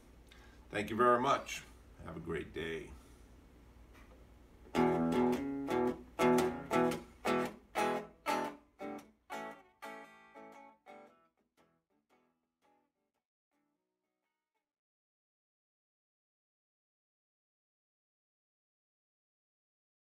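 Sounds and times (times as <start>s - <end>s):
electric guitar strummed chords: 4.7s - 11.7s.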